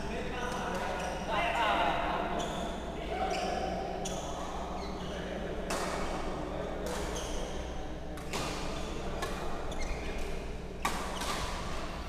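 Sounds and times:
racket hitting shuttlecock: 0:05.7 - 0:06.1, 0:08.2 - 0:11.9.

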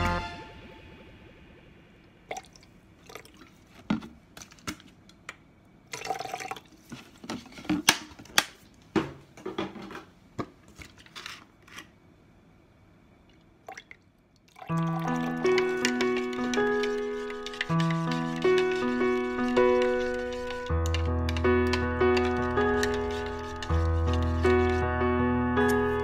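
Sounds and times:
liquid pouring into plastic jug: 0:02.3 - 0:03.7, 0:05.9 - 0:07.0.

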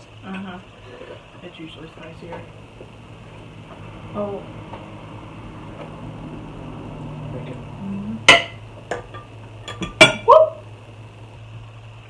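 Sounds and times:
cutlery clinking on plates: 0:08.3 - 0:10.2.

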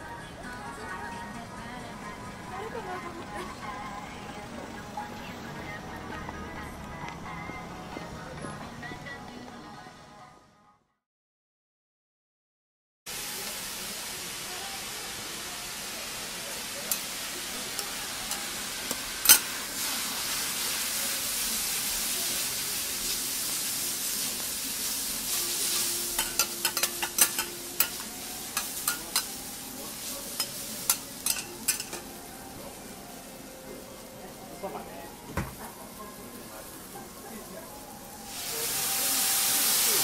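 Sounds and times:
food sizzling on a griddle: 0:13.1 - 0:40.0
metal spatulas clacking and scraping: 0:18.3 - 0:19.5, 0:25.7 - 0:29.4, 0:30.3 - 0:32.1.

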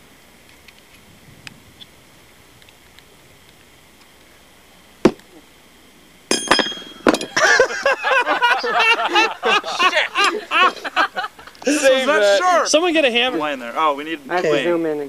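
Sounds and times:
metallic clink with ring: 0:06.3 - 0:07.4
people laughing: 0:07.2 - 0:13.6.

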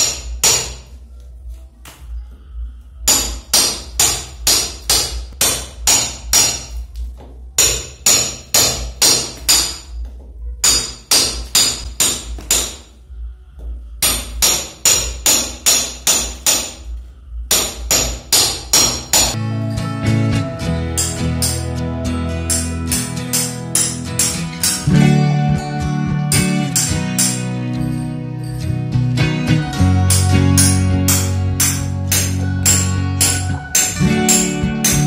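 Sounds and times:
hammer striking metal chisel: 0:00.0 - 0:00.9, 0:03.1 - 0:06.8, 0:07.6 - 0:10.0, 0:10.6 - 0:12.9, 0:14.0 - 0:16.8, 0:17.5 - 0:19.4, 0:20.9 - 0:21.8, 0:22.4 - 0:25.0, 0:26.3 - 0:28.6, 0:30.1 - 0:35.0.

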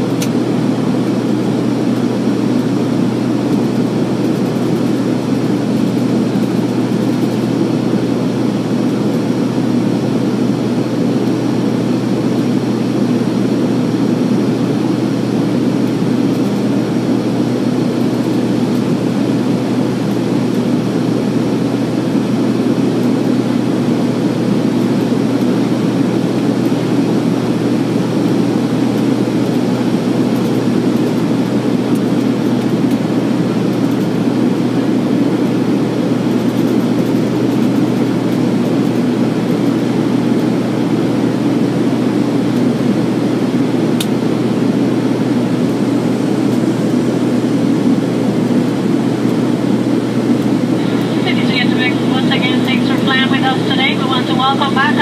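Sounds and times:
aircraft engine drone: 0:00.0 - 0:55.0
constant low hum: 0:00.0 - 0:55.0.

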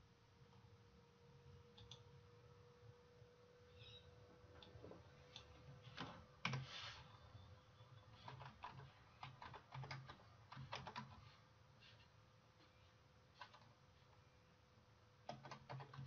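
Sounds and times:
faint keyboard typing: 0:01.7 - 0:02.1, 0:04.6 - 0:07.1, 0:07.9 - 0:14.2, 0:15.2 - 0:16.0.

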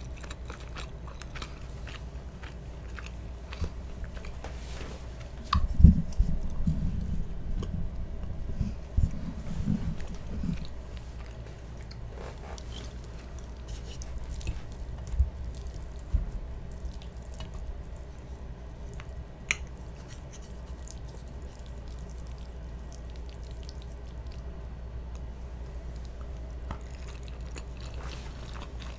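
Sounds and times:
wet chewing: 0:00.0 - 0:04.4, 0:09.6 - 0:24.5, 0:25.1 - 0:28.9
fork and spoon twirling spaghetti: 0:16.7 - 0:23.9.

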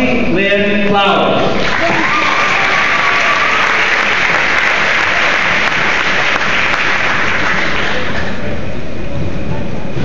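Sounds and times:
audience applauding: 0:01.6 - 0:08.4.

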